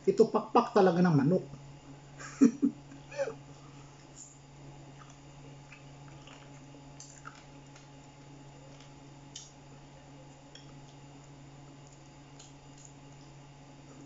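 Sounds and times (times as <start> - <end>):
steady low hum: 0.0 - 14.0
chewing: 2.8 - 14.0.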